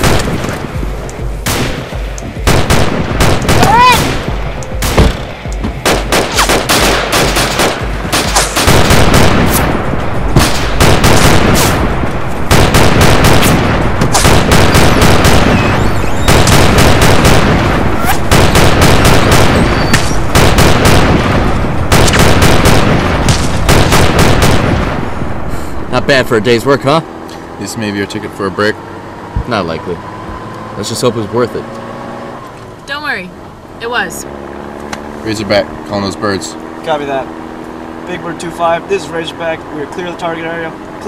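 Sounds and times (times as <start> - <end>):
machine gun firing bursts: 2.4 - 4.2, 5.8 - 9.5, 10.4 - 11.8, 12.5 - 24.9.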